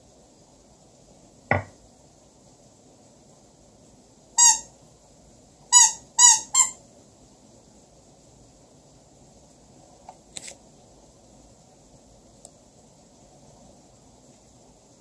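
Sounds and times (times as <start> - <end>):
squeaky toy squeaks: 4.4 - 4.7, 5.7 - 6.8.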